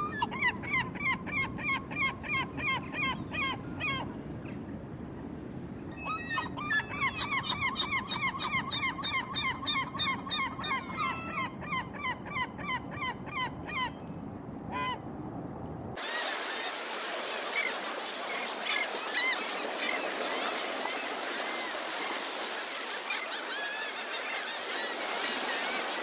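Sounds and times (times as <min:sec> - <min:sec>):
gull calling rapidly: 0:06.0 - 0:13.9, 0:16.0 - 0:26.0
faint gull calls: 0:06.0 - 0:14.0, 0:14.7 - 0:15.0, 0:16.0 - 0:26.0
surf washing on beach: 0:16.0 - 0:26.0.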